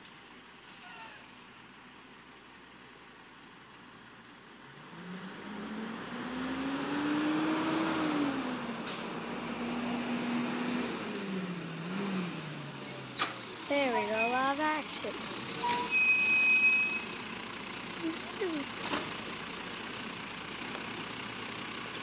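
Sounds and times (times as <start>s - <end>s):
garbage truck engine: 0.0s - 22.0s.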